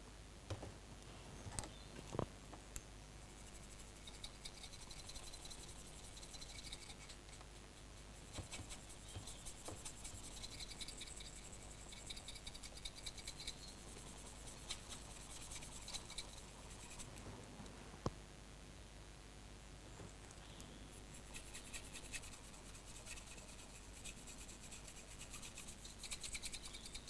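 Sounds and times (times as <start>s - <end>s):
paintbrush bristles scratching: 3.4s - 17.2s, 21.1s - 27.0s.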